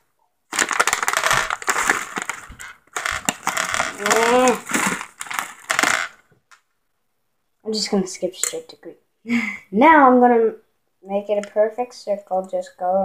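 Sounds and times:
candies rattling: 0.5s - 6.2s
packaging crinkling: 0.5s - 6.2s.

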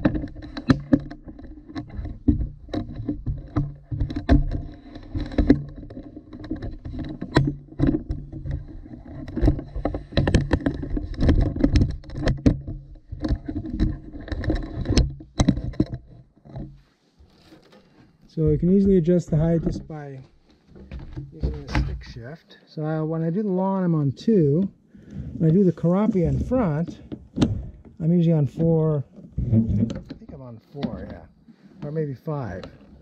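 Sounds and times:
mower handling clicks and knocks: 0.0s - 18.0s.

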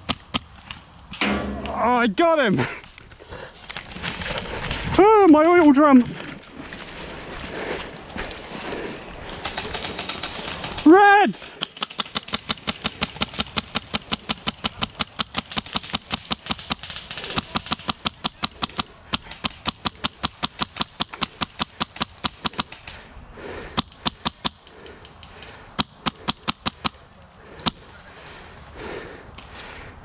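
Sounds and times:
airsoft rifle shots: 11.6s - 22.9s.

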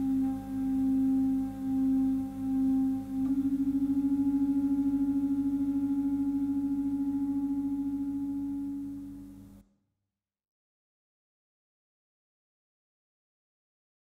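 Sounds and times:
clarinet and electronic drone: 0.0s - 9.6s.

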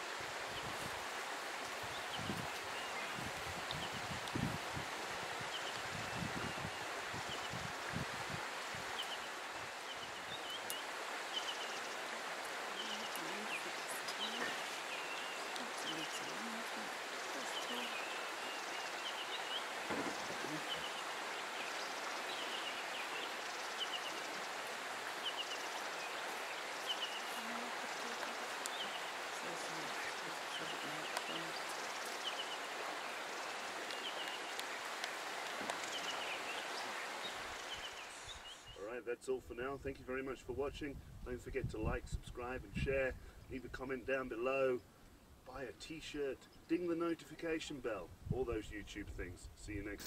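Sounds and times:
steady rustling hiss: 0.0s - 39.1s.

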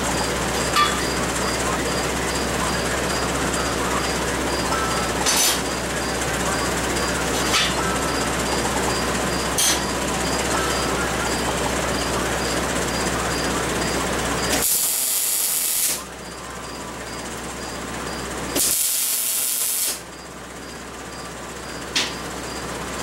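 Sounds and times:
steady hum: 0.0s - 23.0s
welding hiss and crackle: 14.5s - 16.1s, 18.5s - 20.0s.

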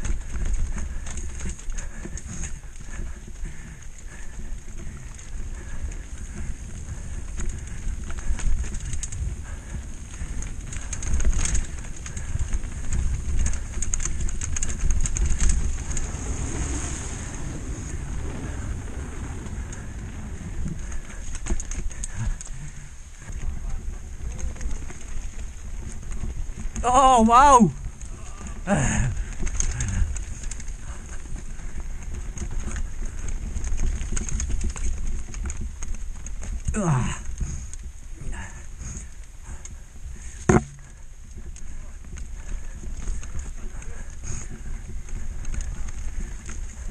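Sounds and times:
wind rumble on microphone: 0.0s - 26.8s, 27.7s - 46.9s
bike rattling: 0.0s - 46.9s
tyres rolling on wooden boardwalk: 0.0s - 46.9s
tyres crunching over stones: 12.8s - 22.7s
low rumble: 13.5s - 21.2s
tyres drumming over stones: 40.5s - 40.9s.

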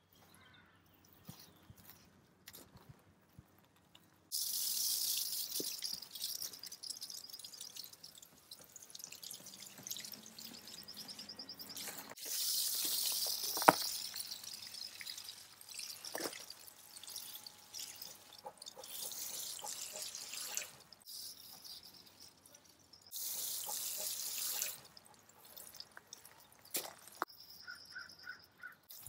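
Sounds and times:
hose spray hissing: 11.8s - 14.2s, 23.2s - 24.8s.

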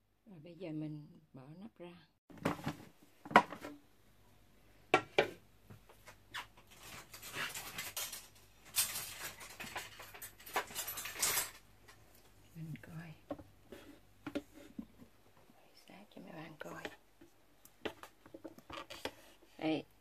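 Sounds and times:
rustling and scraping handling: 5.7s - 12.4s, 13.5s - 15.6s, 16.4s - 19.8s.

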